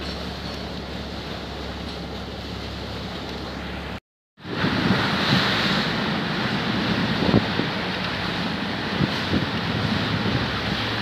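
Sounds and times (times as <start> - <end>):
boat engine hum: 0.0 - 11.0
water rushing past boat: 0.0 - 11.0
wind buffeting microphone: 4.4 - 11.0.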